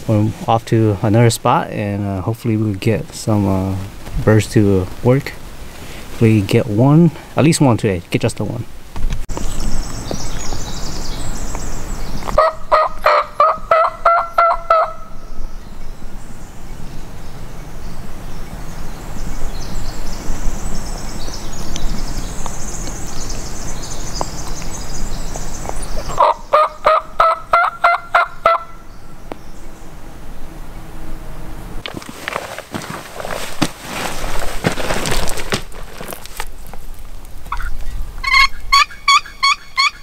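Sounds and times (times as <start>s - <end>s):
turkey gobbling: 12.4s - 15.1s, 26.0s - 28.8s, 37.5s - 40.0s.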